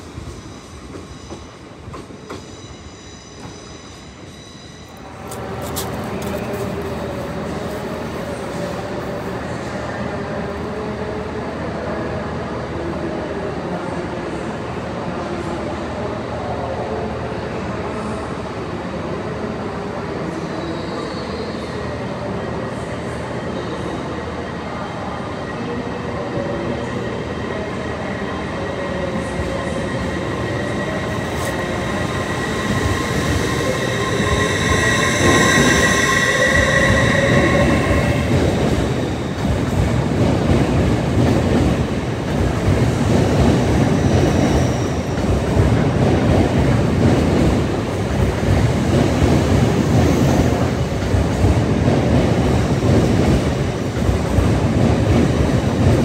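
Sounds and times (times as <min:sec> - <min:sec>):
train passing: 0:00.0 - 0:11.0, 0:24.2 - 0:56.0.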